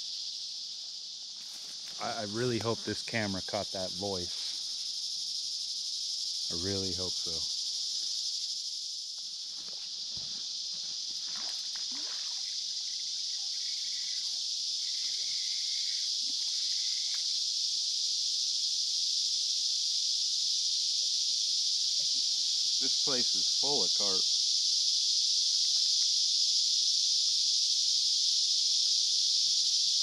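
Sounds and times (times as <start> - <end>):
insects buzzing: 0.0 - 30.0.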